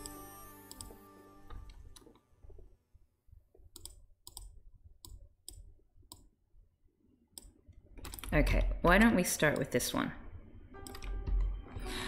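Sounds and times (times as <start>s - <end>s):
faint computer mouse clicks: 0.0s - 0.9s.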